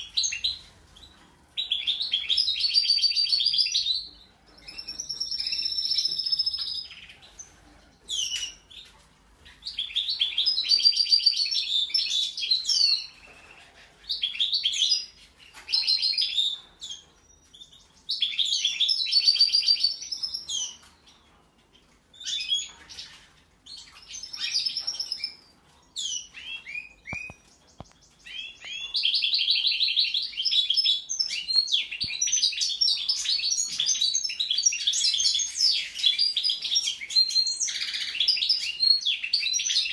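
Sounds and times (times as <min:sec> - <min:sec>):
finch twittering song: 0:22.1 - 0:39.9.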